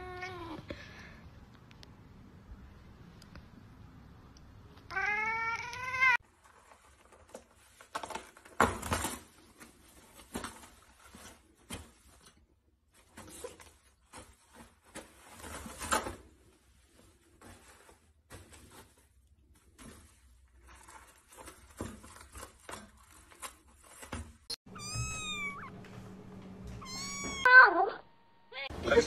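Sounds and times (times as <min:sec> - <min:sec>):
cat meowing: 0:04.9 - 0:06.2, 0:24.7 - 0:25.7, 0:26.8 - 0:28.7
toilet paper rustling and scratching: 0:06.2 - 0:24.5.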